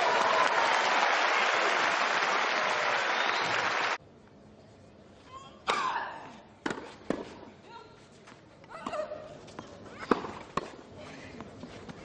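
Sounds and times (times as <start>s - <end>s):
crowd applauding: 0.0s - 4.0s.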